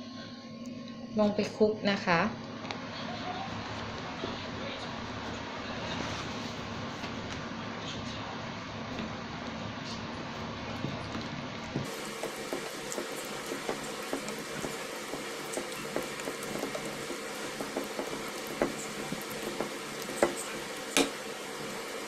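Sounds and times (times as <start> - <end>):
whisk squelching through batter: 11.8 - 22.0.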